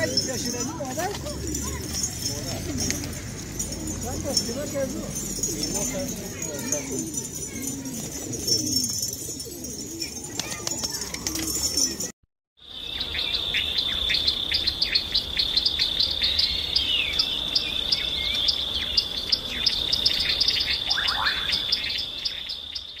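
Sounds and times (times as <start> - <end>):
small birds chirping: 0.0 - 23.0
high-pitched insect trill: 12.6 - 23.0
rising bird calls: 12.7 - 23.0.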